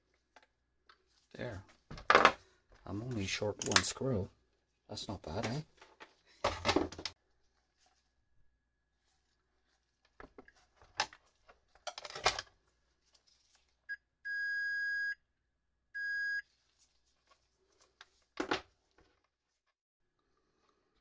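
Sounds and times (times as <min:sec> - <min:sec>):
clicks and knocks of handling tools: 0:03.6 - 0:04.0, 0:10.1 - 0:12.6
electronic meter beeps: 0:13.9 - 0:15.2, 0:16.0 - 0:16.4.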